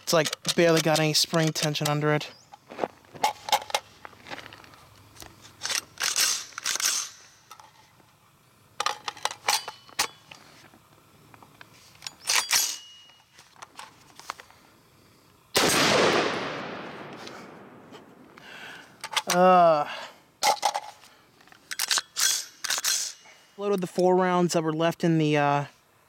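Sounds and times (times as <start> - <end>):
metallic rifle clacks: 0.0 - 2.0, 5.6 - 7.8, 8.8 - 10.4, 12.0 - 14.4, 20.4 - 23.9
loud rifle shot: 15.6 - 18.2.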